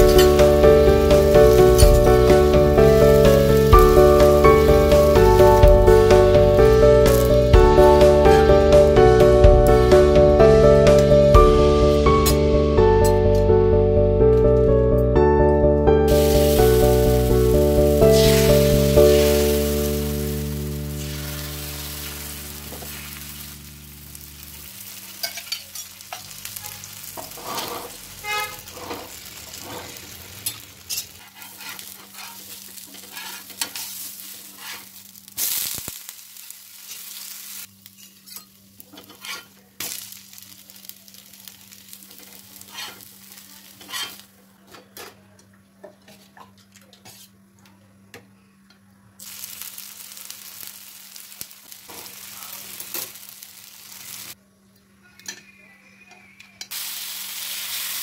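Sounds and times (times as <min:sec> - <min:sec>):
batter sizzling on hot pan: 0:16.1 - 0:44.4, 0:49.2 - 0:54.4, 0:56.7 - 0:58.0.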